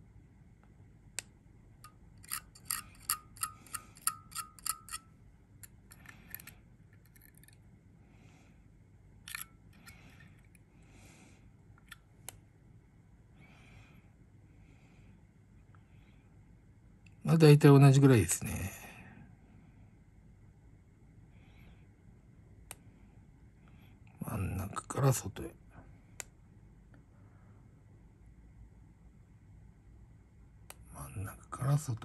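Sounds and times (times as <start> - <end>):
light ringing clicks: 1.8 - 7.6.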